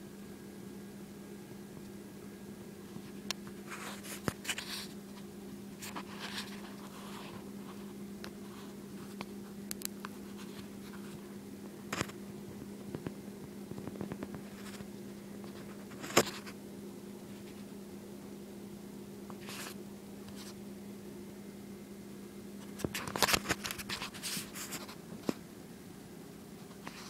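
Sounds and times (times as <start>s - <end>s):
steady low hum: 0.0s - 27.0s
scratchy rustling handling noise: 2.8s - 16.6s, 19.3s - 20.6s, 22.6s - 25.4s.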